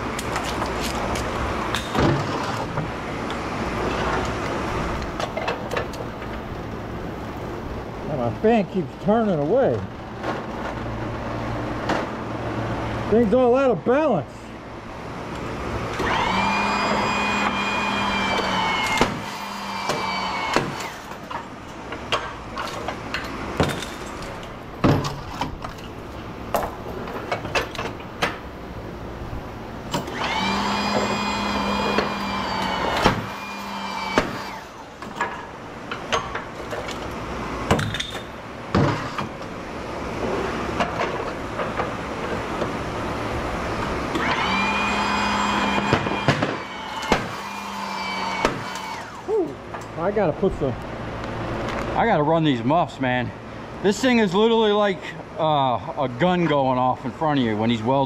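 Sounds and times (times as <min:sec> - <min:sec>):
motor-driven tool running: 0:15.9 - 0:21.2, 0:29.9 - 0:34.9, 0:44.1 - 0:49.3.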